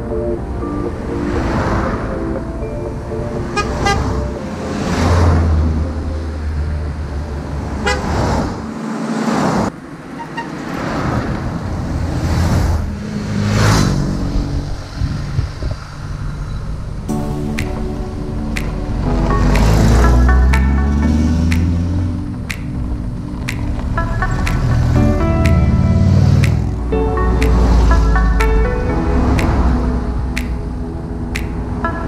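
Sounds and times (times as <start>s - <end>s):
cars driving past: 0.0s - 32.0s
car horn toots: 3.6s - 4.2s, 7.8s - 8.2s.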